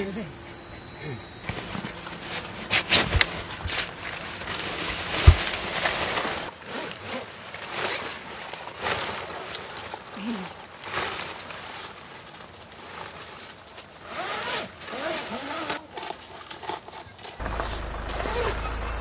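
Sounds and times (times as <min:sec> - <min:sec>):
insects droning: 0:00.0 - 0:19.0
tent fabric rustling and scraping: 0:01.4 - 0:19.0
zipper sounds: 0:06.2 - 0:08.2, 0:14.0 - 0:16.8.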